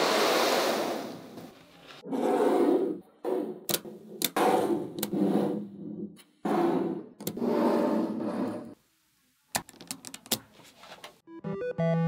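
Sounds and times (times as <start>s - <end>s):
balls snapping together: 9.5s - 10.4s
magnetic balls rattling and clicking: 9.6s - 10.5s.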